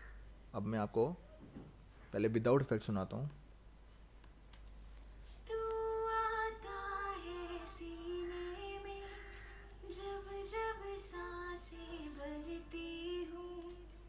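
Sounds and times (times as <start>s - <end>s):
woman singing unaccompanied: 5.5s - 14.0s.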